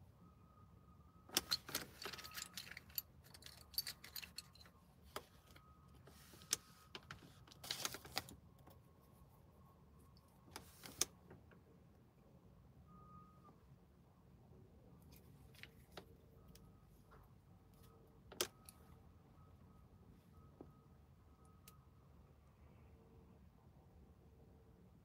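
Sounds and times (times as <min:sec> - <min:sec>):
low hum inside car: 0:00.0 - 0:25.0
small metal items jingling: 0:01.4 - 0:04.8.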